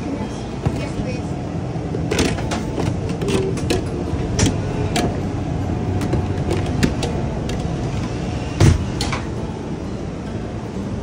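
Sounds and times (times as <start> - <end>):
kitchen equipment rumbling: 1.8 - 9.4
utensils clicking and knocking: 2.0 - 5.2, 5.9 - 8.2.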